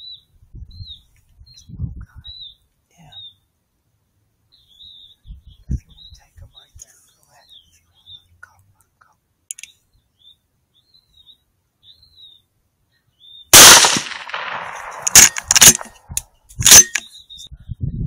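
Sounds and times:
sharp clicks: 9.5s - 9.8s, 13.6s - 17.0s
rifle shot: 13.5s - 17.0s.

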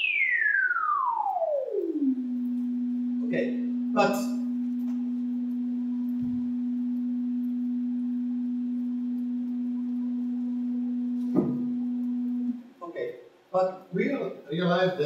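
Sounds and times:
steady synthesized tone: 0.0s - 12.8s
low thump: 11.2s - 11.9s.

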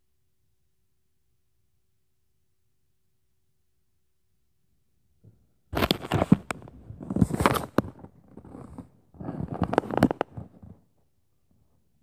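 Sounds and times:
phone handling rustling and clicks: 5.8s - 8.8s, 9.4s - 10.6s.

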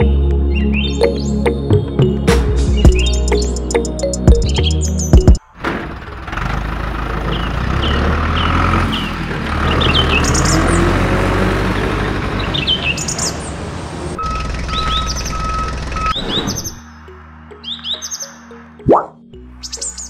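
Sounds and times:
bird chirps: 2.8s - 3.6s, 14.2s - 20.0s.

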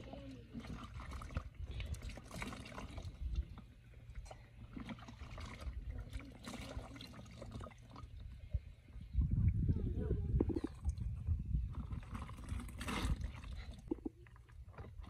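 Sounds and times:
water splashing and trickling: 0.0s - 15.0s
water dripping into bucket: 10.4s - 15.0s.

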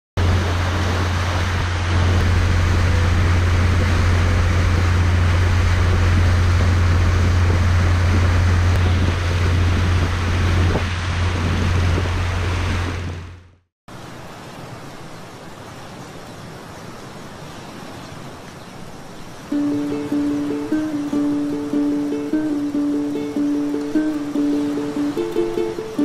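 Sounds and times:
boat motor drone: 0.2s - 13.6s, 19.5s - 26.0s
water rushing: 0.2s - 26.0s
wind: 0.2s - 26.0s.

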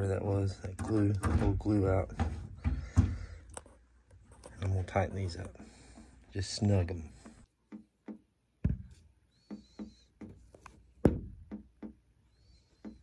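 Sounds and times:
plastic fittings squeaking and clicking: 8.8s - 13.0s.

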